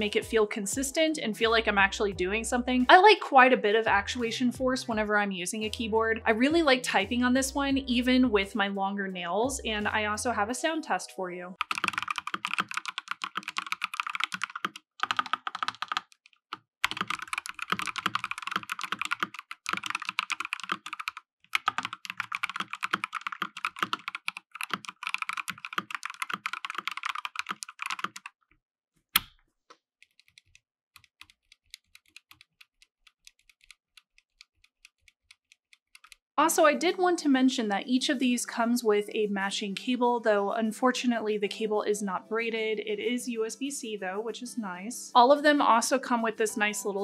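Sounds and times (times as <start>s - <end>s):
mechanical keyboard typing: 11.6s - 28.4s, 30.0s - 36.2s.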